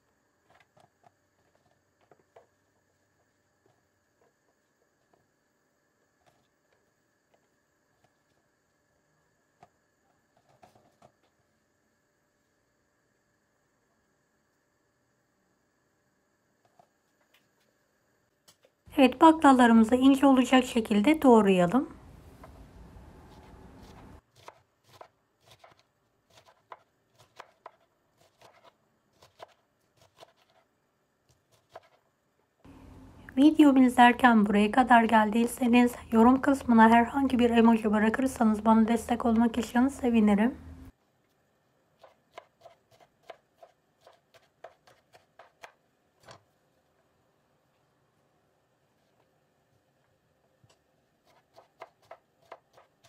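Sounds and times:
faint steady hiss: 0:00.0 - 0:53.0
knife slicing on wooden board: 0:23.3 - 0:30.7.

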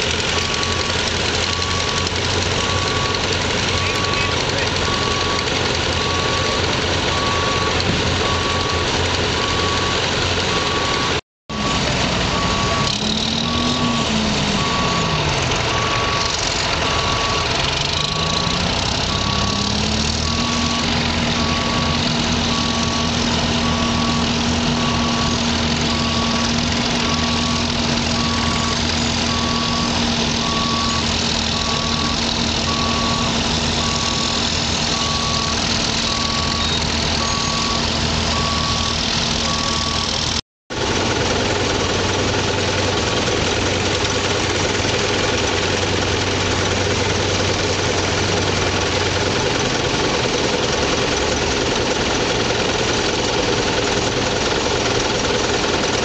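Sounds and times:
tractor engine under load: 0:00.0 - 0:56.0
regular beep: 0:00.4 - 0:40.3.

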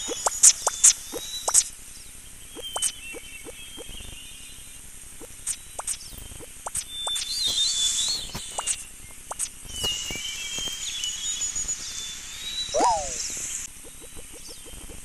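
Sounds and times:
warbling whistles: 0:00.0 - 0:01.7, 0:02.5 - 0:04.2, 0:05.5 - 0:15.0
rising and falling call: 0:09.8 - 0:14.9
squeaky animal chirps: 0:12.7 - 0:15.0.

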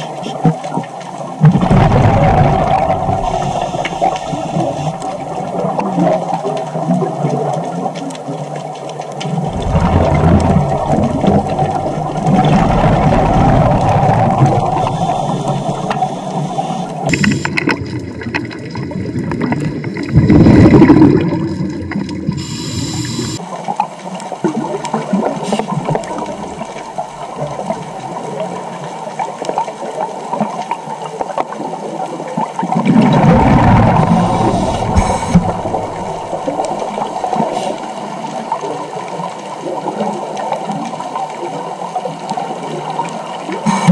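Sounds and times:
exhaled bubbles rumbling: 0:00.0 - 0:43.9
underwater regulator breathing: 0:02.7 - 0:05.2, 0:09.8 - 0:17.7, 0:22.3 - 0:23.4, 0:33.6 - 0:38.0, 0:43.6 - 0:43.9.

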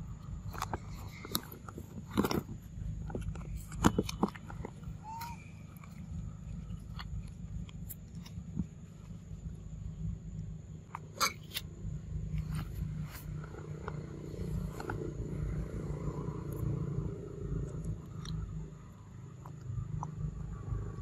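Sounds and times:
monkey squeak: 0:04.9 - 0:05.9.

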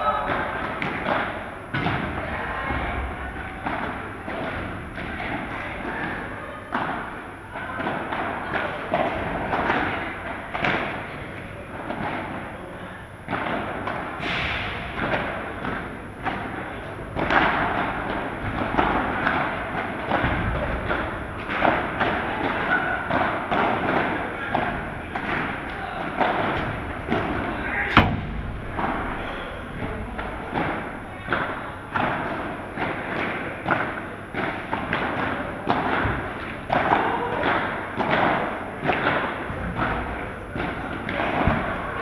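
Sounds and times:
padel ball hollow thuds: 0:13.3 - 0:42.0.

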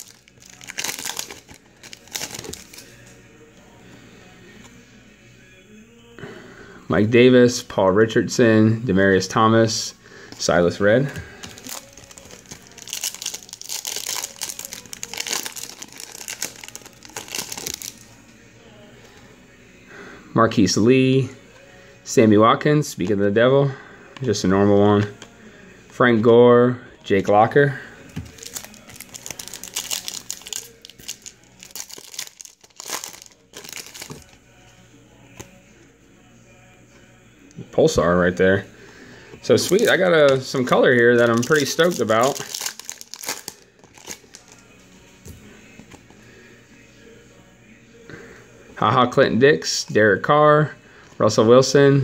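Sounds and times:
wrapper crinkling: 0:00.0 - 0:02.9, 0:11.4 - 0:18.0, 0:28.2 - 0:34.4, 0:39.5 - 0:44.7.

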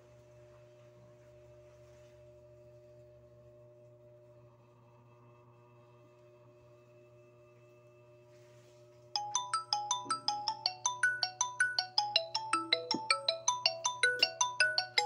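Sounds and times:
marimba ringtone melody: 0:09.2 - 0:15.0.

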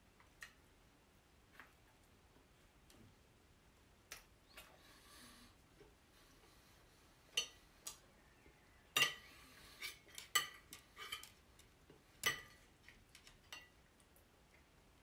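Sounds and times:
cutlery clinking on a plate: 0:07.4 - 0:07.6, 0:09.0 - 0:11.4, 0:12.2 - 0:13.8.

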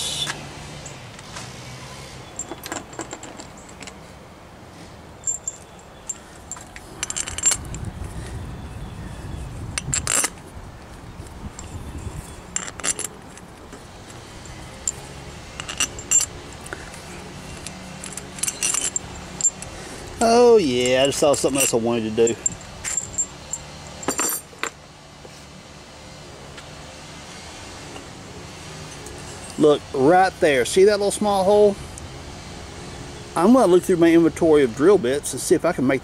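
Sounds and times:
steel bolts clinking: 0:02.2 - 0:04.0, 0:05.2 - 0:07.8, 0:09.8 - 0:10.4, 0:11.6 - 0:24.8.

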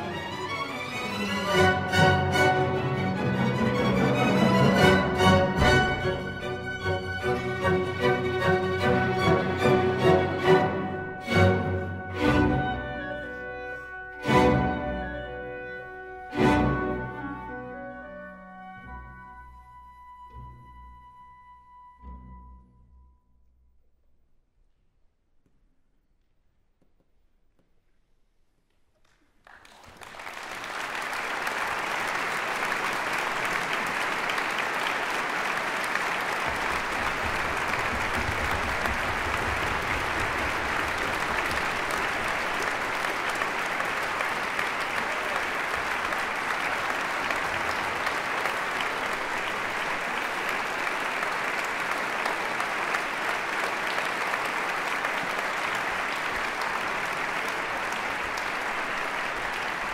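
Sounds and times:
audience applauding: 0:00.0 - 0:13.4, 0:29.0 - 0:59.9.

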